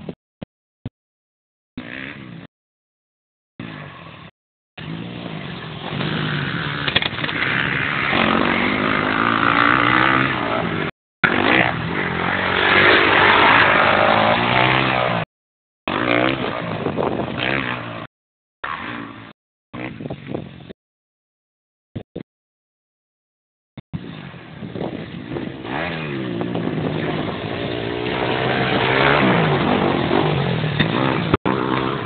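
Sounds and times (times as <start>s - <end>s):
motocross bike engines revving: 1.8s - 2.5s, 3.6s - 15.3s, 15.9s - 20.4s, 24.0s - 32.0s.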